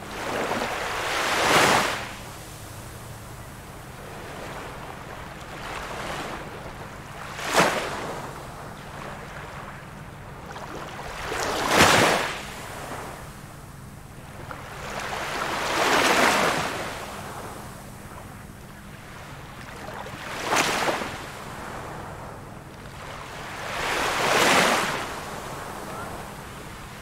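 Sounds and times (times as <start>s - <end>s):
surf washing: 0.0s - 3.2s, 3.8s - 13.4s, 19.1s - 27.0s
ocean waves breaking on beach: 0.0s - 13.5s, 14.2s - 27.0s.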